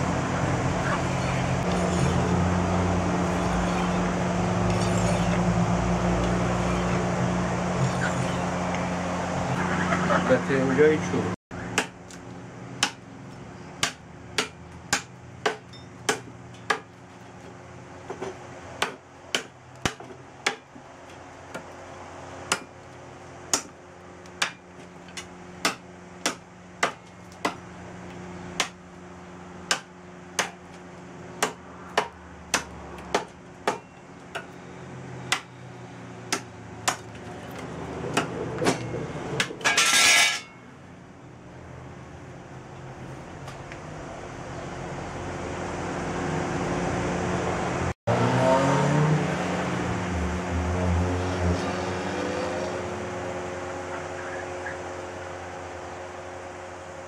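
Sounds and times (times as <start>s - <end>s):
billhook chopping wood: 11.7s - 13.0s, 13.8s - 17.0s, 18.8s - 20.7s, 22.5s - 22.8s, 23.5s - 27.6s, 28.6s - 28.8s, 29.7s - 30.6s, 31.4s - 34.5s, 35.3s - 35.5s, 36.3s - 37.1s.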